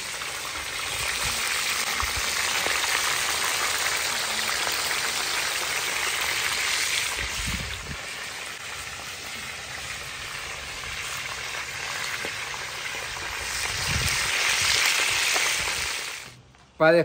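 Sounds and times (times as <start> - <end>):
fish sizzling in hot oil: 0.0 - 16.4.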